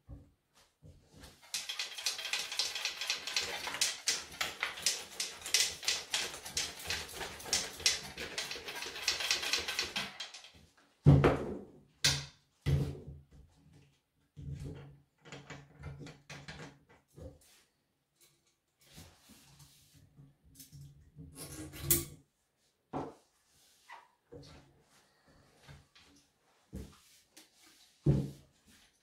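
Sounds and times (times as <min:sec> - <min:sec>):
chainsaw rattling when shaken: 0:01.4 - 0:10.6.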